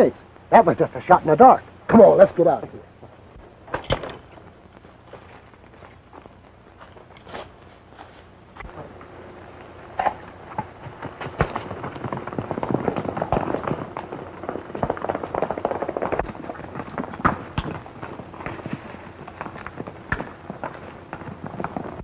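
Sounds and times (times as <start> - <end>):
horse hoofbeats on dirt: 3.0 - 9.0, 9.9 - 22.0.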